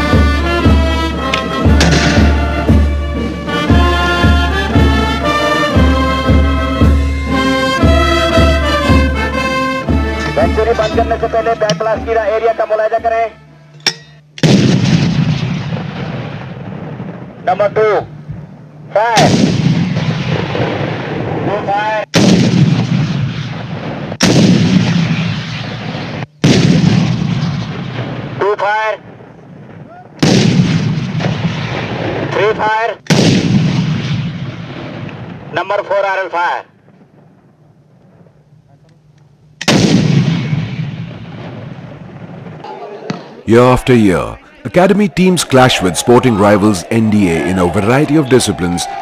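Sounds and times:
steady low drum beat: 0:00.0 - 0:13.4
brass march music: 0:00.0 - 0:13.7, 0:43.5 - 0:49.0
explosions with rumbling decay: 0:01.7 - 0:02.7, 0:14.4 - 0:18.5, 0:19.1 - 0:35.8, 0:36.8 - 0:38.4, 0:39.6 - 0:42.7
rocket launcher firing: 0:01.8 - 0:02.3, 0:14.4 - 0:16.8, 0:19.2 - 0:21.4, 0:22.2 - 0:28.4, 0:30.2 - 0:32.4, 0:33.1 - 0:35.4, 0:39.6 - 0:43.3.

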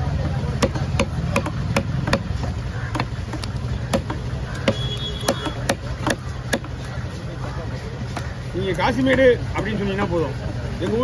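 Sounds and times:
knife chopping on wooden block: 0:00.5 - 0:06.8.

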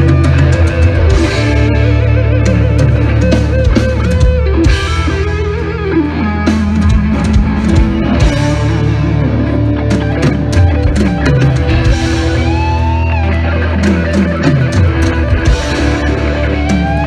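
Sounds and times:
bass: 0:00.0 - 0:17.0
drums: 0:00.0 - 0:17.0
electric guitars: 0:00.0 - 0:17.0.

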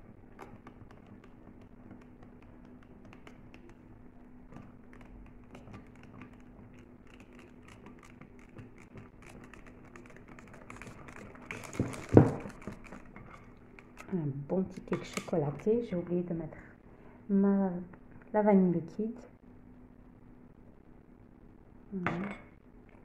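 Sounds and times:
whisk clicking against glass bowl: 0:00.4 - 0:03.9, 0:04.5 - 0:14.1.

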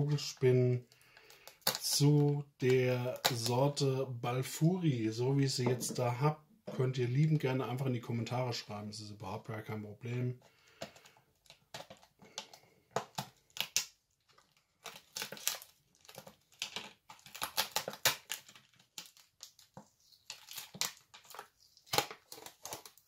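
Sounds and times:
packaging crinkling and tearing: 0:00.9 - 0:03.8, 0:10.8 - 0:23.0.

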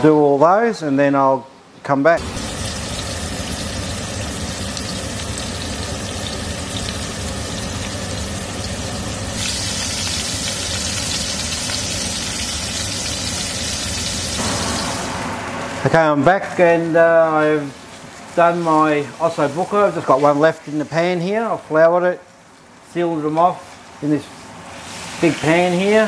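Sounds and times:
meat sizzling in oil: 0:02.2 - 0:15.2, 0:24.3 - 0:26.0
low hum: 0:02.2 - 0:18.1.

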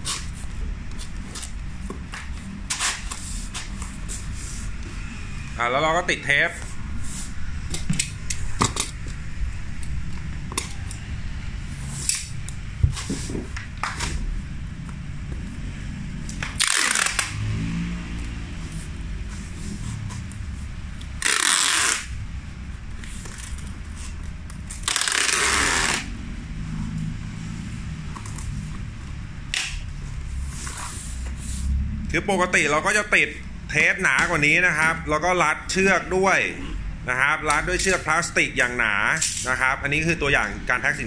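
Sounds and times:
packing tape pulled off roll: 0:16.4 - 0:17.4, 0:21.1 - 0:22.1, 0:24.6 - 0:26.1.

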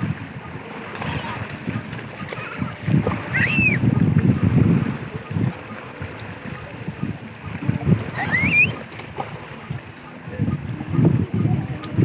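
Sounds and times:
wind buffeting microphone: 0:00.0 - 0:12.0
small child squealing: 0:03.3 - 0:03.8, 0:08.2 - 0:08.8.

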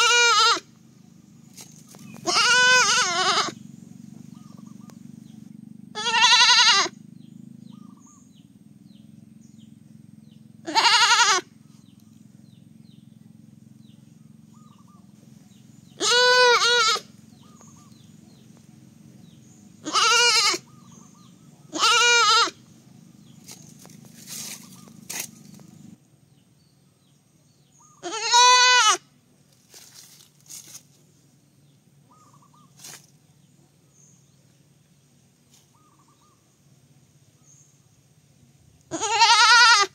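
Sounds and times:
baby goat bleating: 0:00.0 - 0:00.7, 0:02.2 - 0:03.6, 0:05.9 - 0:07.0, 0:10.6 - 0:11.5, 0:16.0 - 0:17.1, 0:19.8 - 0:20.7, 0:21.7 - 0:22.6, 0:28.0 - 0:29.0, 0:38.9 - 0:39.9.

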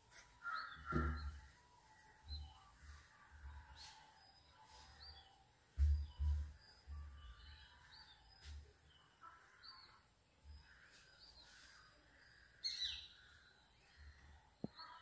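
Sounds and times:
faint birds chirping: 0:00.0 - 0:15.0
soft low thuds: 0:05.7 - 0:07.2.

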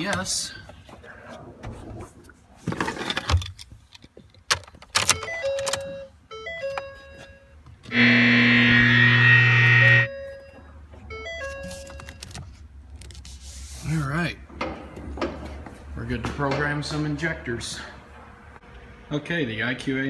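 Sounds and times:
electronic chime tones: 0:05.3 - 0:11.7
loud steady pitched hum: 0:07.9 - 0:10.2.

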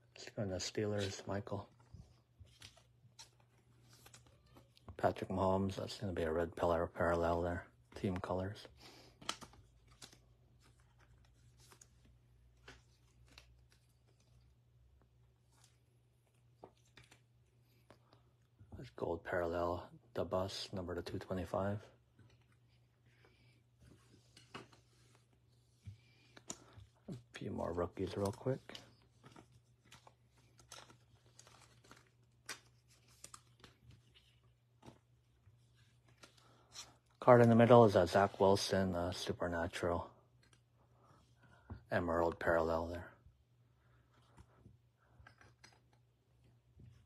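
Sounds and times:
trading cards rustling: 0:07.3 - 0:19.0, 0:20.5 - 0:38.7, 0:43.9 - 0:47.0
soft clicks of cards set down: 0:09.0 - 0:14.4, 0:15.0 - 0:18.3, 0:22.2 - 0:27.1, 0:44.1 - 0:47.0.

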